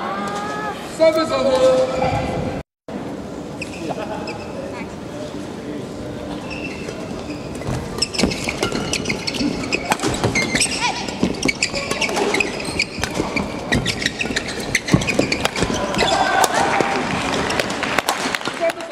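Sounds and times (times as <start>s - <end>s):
shoes squeaking on floor: 6.3s - 17.8s
rackets striking shuttlecock: 8.0s - 18.4s.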